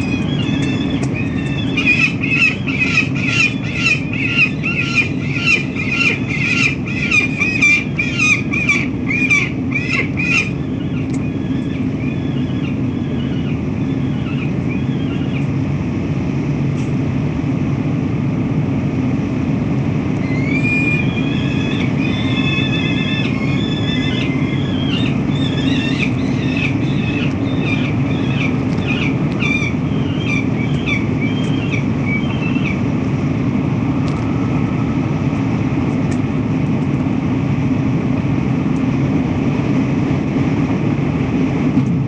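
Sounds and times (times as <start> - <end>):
falcon harsh calls: 0.0 - 15.4, 20.2 - 32.8
low city rumble: 0.0 - 42.0.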